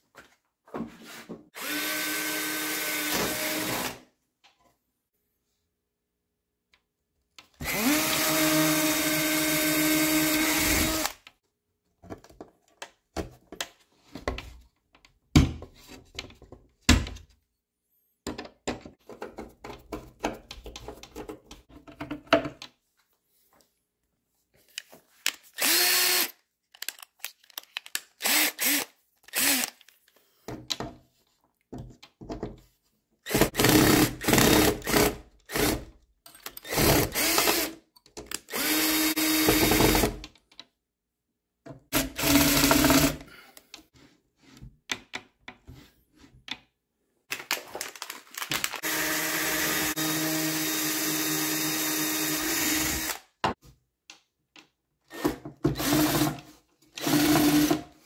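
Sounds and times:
power drill running: 1.6s - 4.0s, 7.6s - 11.2s, 25.6s - 26.3s, 28.2s - 29.7s, 36.6s - 37.8s, 38.5s - 40.1s, 42.0s - 43.2s, 48.8s - 53.2s, 55.8s - 56.4s, 57.0s - 57.8s.

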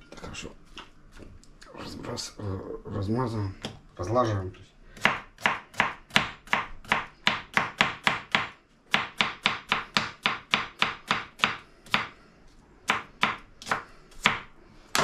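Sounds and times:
knife chopping on cutting board: 5.0s - 12.2s, 12.9s - 15.0s.

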